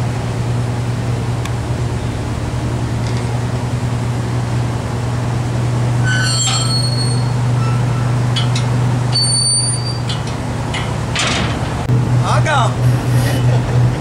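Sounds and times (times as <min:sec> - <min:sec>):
boat engine droning: 0:00.0 - 0:14.0
metallic squeaks of railings: 0:06.0 - 0:11.9
metal clicks: 0:08.2 - 0:09.3, 0:09.9 - 0:11.9.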